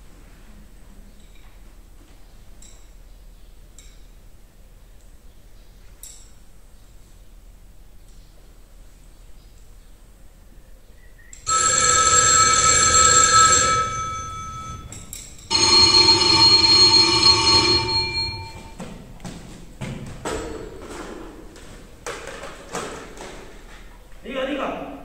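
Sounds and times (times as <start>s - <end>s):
telephone bell ringing: 11.5s - 18.8s.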